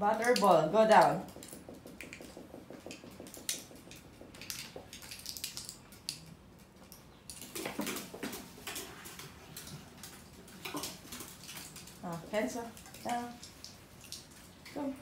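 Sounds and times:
dog claws clicking on wooden stairs: 0.3s - 6.3s.

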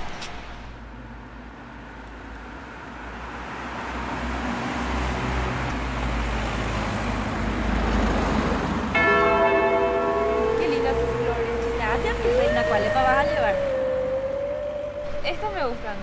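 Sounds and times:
road traffic: 0.0s - 16.0s
large truck driving past: 3.7s - 16.0s
bell ringing: 9.0s - 15.9s.

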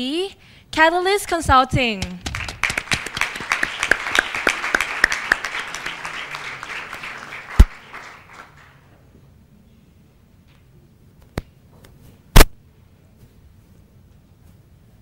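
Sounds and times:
audience applauding: 2.2s - 8.9s.

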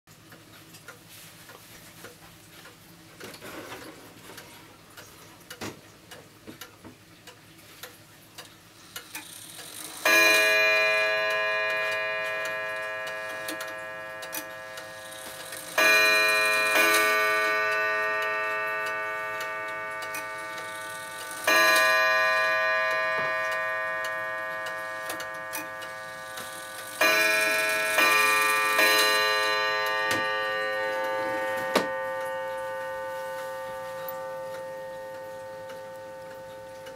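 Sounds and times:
wall clock ticking: 0.2s - 36.9s
clock striking: 8.9s - 36.9s.

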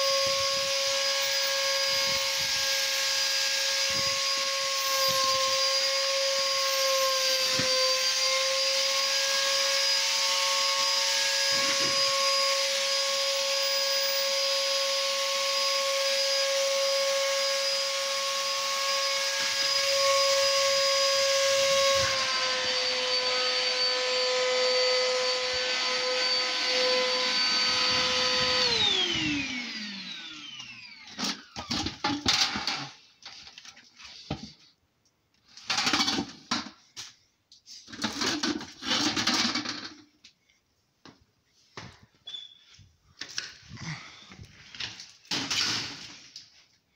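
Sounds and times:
shop vac motor whining: 0.0s - 33.0s.

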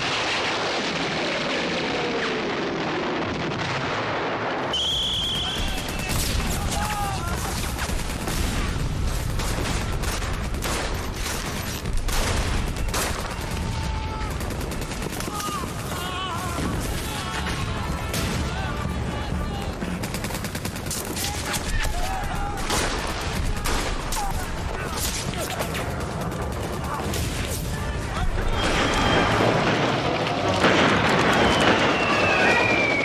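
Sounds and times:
rapid rifle and machine-gun fire: 0.0s - 33.0s
men shouting and crying out: 5.4s - 7.8s, 12.8s - 20.1s, 21.2s - 33.0s
rumbling distant gunfire: 7.4s - 15.9s.

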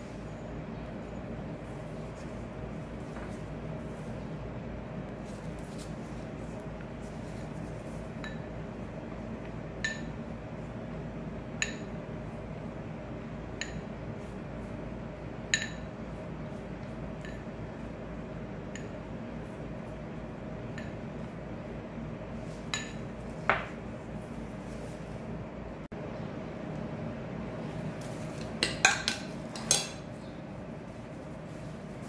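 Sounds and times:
steady low hum: 0.0s - 32.0s
brush tapping glass bowl: 8.2s - 8.5s.

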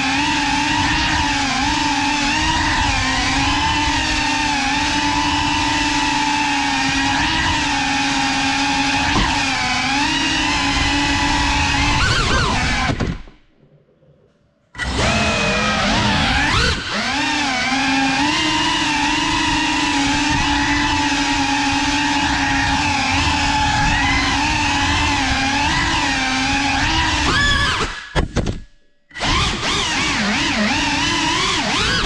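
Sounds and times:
drone motors whining: 0.0s - 28.5s, 29.1s - 32.0s.

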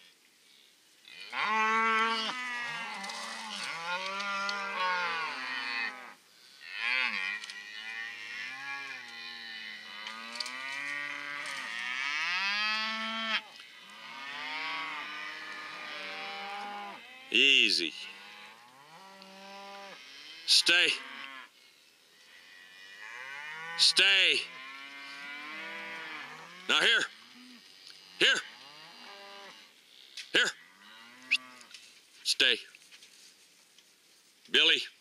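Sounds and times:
cattle mooing: 1.2s - 17.4s, 22.4s - 29.7s.

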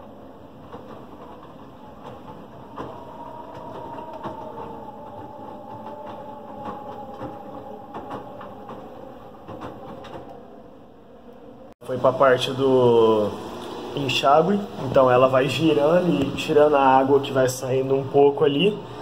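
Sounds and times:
washing machine motor whine: 0.0s - 19.0s.

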